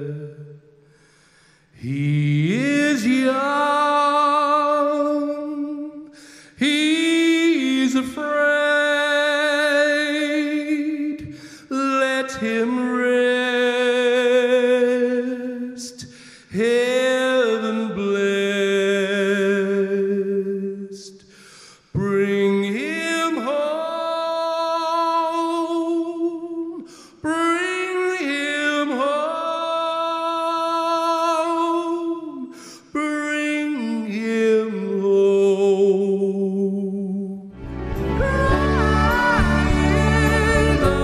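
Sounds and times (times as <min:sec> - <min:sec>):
man singing with vibrato: 0:00.0 - 0:41.0
singer breathing: 0:00.8 - 0:01.8, 0:06.1 - 0:06.6, 0:11.3 - 0:11.7, 0:16.0 - 0:16.5, 0:21.2 - 0:22.0, 0:26.8 - 0:27.2, 0:32.5 - 0:33.0.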